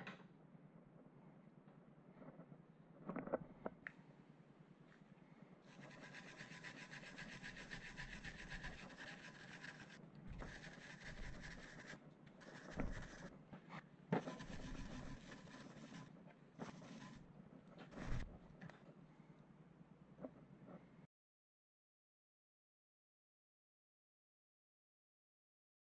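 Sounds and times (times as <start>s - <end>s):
wire brush scrubbing metal: 5.7s - 13.3s, 14.2s - 17.3s.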